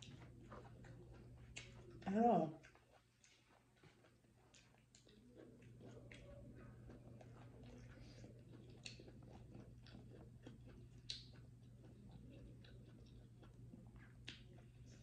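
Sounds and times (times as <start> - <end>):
chewing noodles: 0.0 - 15.0
low steady hum: 0.0 - 15.0
wet mouth ticks: 11.0 - 11.4.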